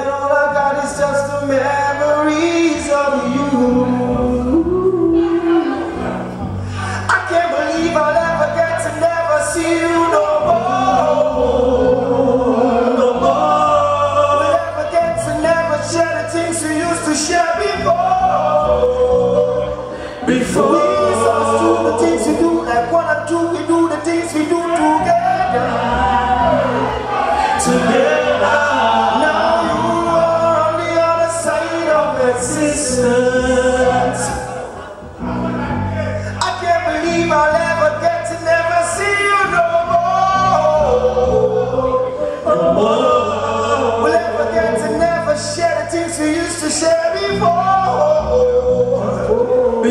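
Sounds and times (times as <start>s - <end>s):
bass line: 0.0s - 49.9s
men singing together: 9.3s - 23.8s, 24.7s - 35.4s, 37.0s - 49.9s.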